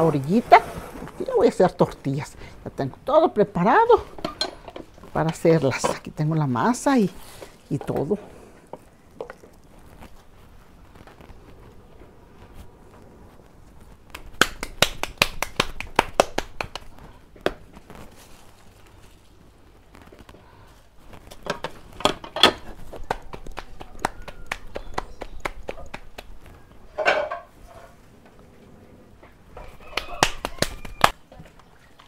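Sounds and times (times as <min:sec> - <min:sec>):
hands slapping dough: 0:14.1 - 0:18.0, 0:22.7 - 0:26.5, 0:30.0 - 0:31.2.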